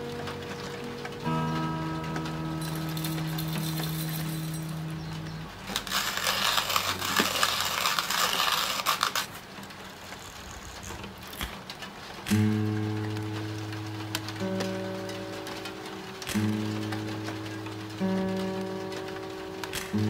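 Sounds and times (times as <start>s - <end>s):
guitar chord ringing: 0.0s - 5.8s, 12.3s - 20.0s
coffee grinder crunching beans: 2.6s - 4.8s, 5.6s - 11.6s.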